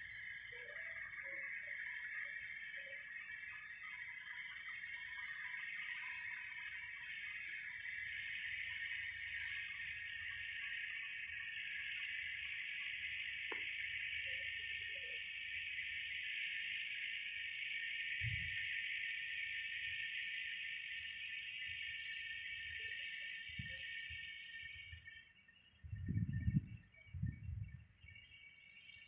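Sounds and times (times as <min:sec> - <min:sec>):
faint chirps: 0:00.0 - 0:29.0
insects droning: 0:00.0 - 0:29.0.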